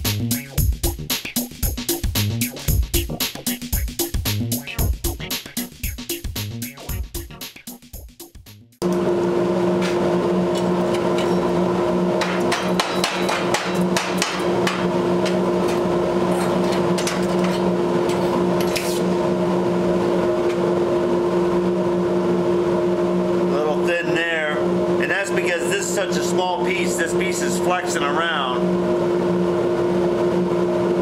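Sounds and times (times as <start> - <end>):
steady machine hum: 8.8 - 31.0.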